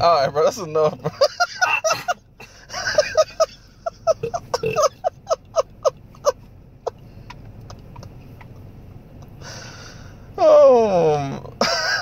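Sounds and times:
woman laughing: 1.0s - 6.4s.

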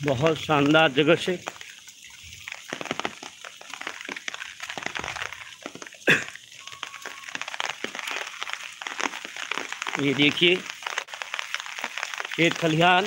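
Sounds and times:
footsteps on wet dirt path: 2.6s - 13.0s.

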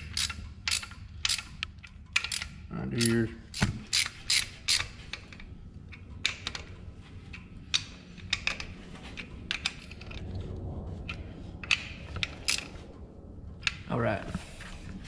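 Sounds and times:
ratchet wrench clicking on metal: 0.0s - 6.7s.

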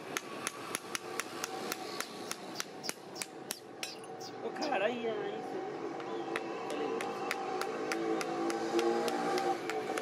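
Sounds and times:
hammer tapping nails into hoof: 0.1s - 4.0s, 6.4s - 10.0s.

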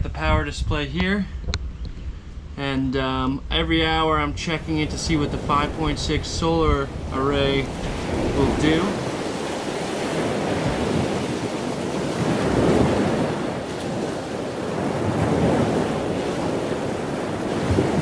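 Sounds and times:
wind rushing: 3.4s - 18.0s
sea waves: 3.9s - 18.0s.

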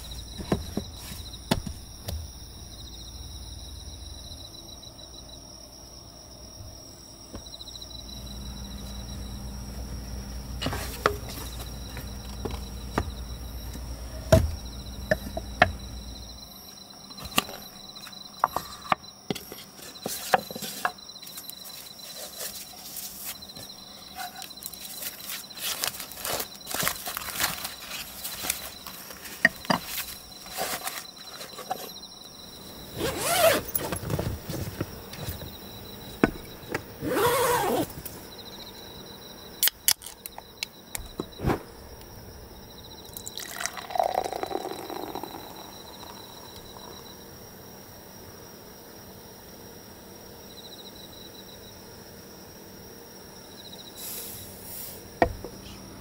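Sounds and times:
crickets chirping: 0.0s - 56.0s
wooden objects knocking on table: 1.5s - 2.2s
paper or cloth rustling: 21.6s - 23.6s, 24.2s - 32.0s, 32.9s - 35.5s.

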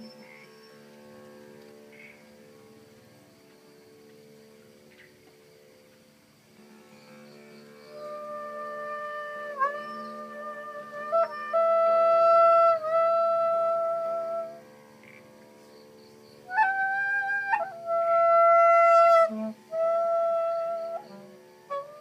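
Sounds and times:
flute-like wind tones: 7.8s - 14.6s, 16.4s - 22.0s.

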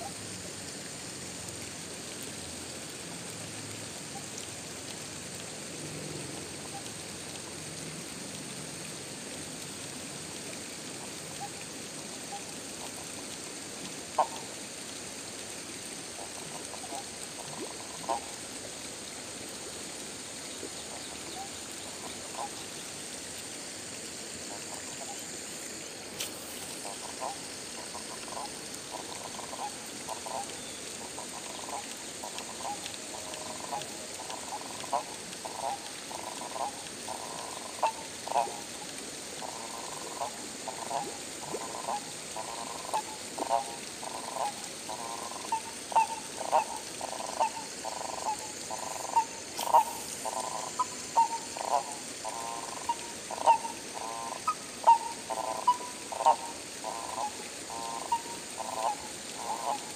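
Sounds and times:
steady high-pitched hiss: 0.0s - 59.9s
frog rattling croak: 16.1s - 18.4s, 21.2s - 22.6s, 26.2s - 38.7s, 39.4s - 59.9s
short animal calls: 44.2s - 59.8s.

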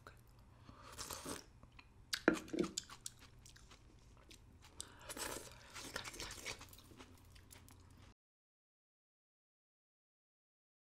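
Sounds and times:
person slurping: 0.7s - 1.5s, 4.6s - 6.9s.

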